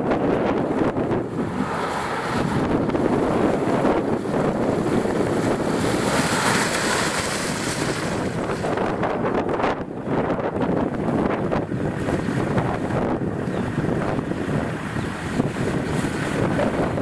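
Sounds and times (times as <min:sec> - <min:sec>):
wind buffeting microphone: 0:00.0 - 0:17.0
tyres splashing through mud: 0:00.6 - 0:09.3.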